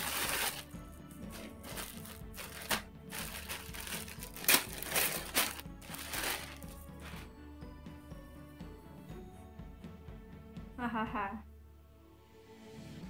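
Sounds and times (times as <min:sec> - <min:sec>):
plastic bag crinkling: 0:00.0 - 0:00.7, 0:01.3 - 0:07.3
background music: 0:00.0 - 0:13.0.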